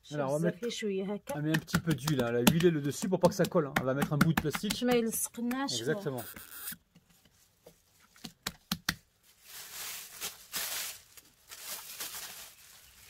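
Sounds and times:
plastic sheet rustling: 0:09.1 - 0:13.0.

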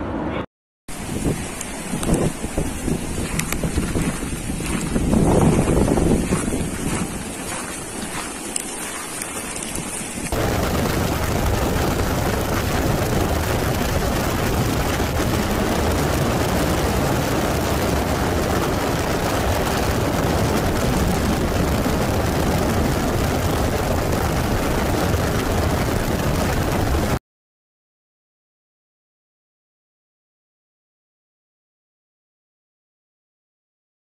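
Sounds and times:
wind noise: 0:00.9 - 0:27.2
helicopter rotor and engine din: 0:10.3 - 0:27.2.

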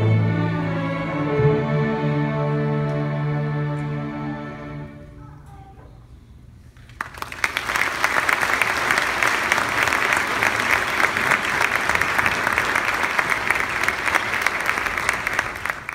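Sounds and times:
audience applauding: 0:06.8 - 0:15.9.

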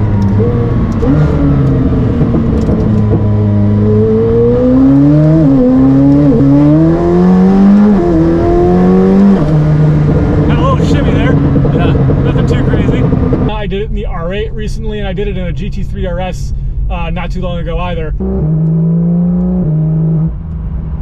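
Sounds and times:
sports car engine accelerating: 0:00.0 - 0:13.8, 0:18.1 - 0:21.0.

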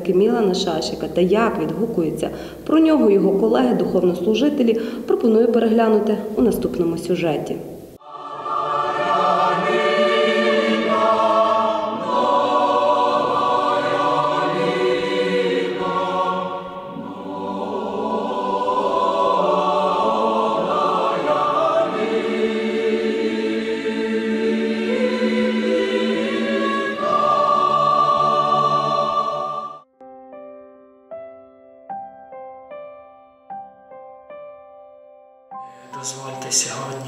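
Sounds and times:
choir singing sustained chords: 0:07.6 - 0:29.9, 0:35.7 - 0:37.0.

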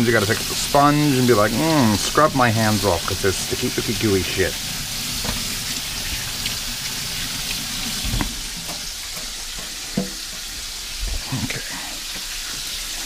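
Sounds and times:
oil sizzling with frying chicken: 0:00.0 - 0:13.0
tap water running: 0:00.0 - 0:13.0.

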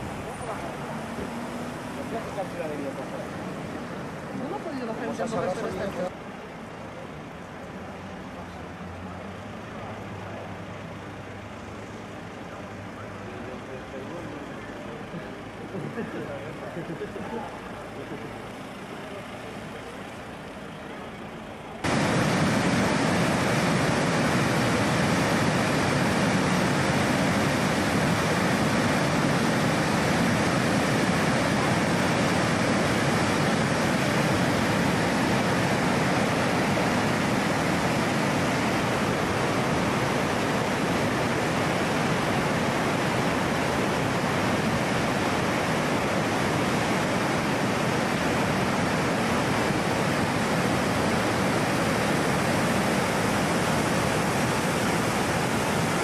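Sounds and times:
river water rushing: 0:21.8 - 0:56.0.

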